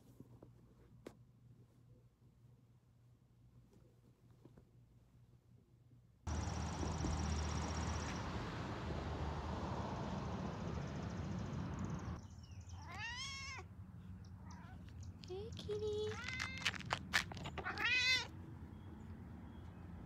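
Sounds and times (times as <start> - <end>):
outdoor background noise: 0.0 - 20.0
cat meowing: 12.8 - 13.7, 16.1 - 18.3.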